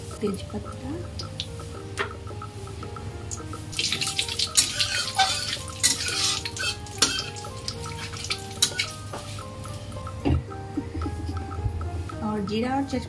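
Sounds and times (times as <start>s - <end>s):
spices sizzling in hot oil: 0.0s - 10.5s
spatula clinking on metal: 3.3s - 9.8s
spatula scraping pan: 3.8s - 7.4s.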